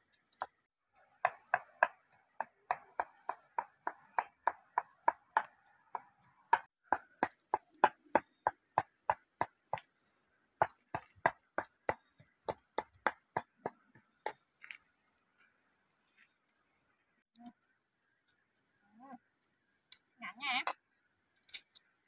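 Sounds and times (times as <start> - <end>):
pestle pounding in clay mortar: 1.2 - 9.6, 10.6 - 13.8.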